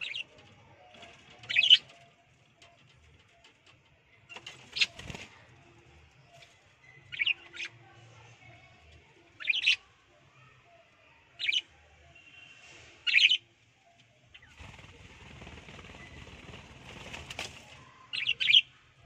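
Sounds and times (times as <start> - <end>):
bird wings flapping: 4.4 - 5.4, 14.5 - 17.8.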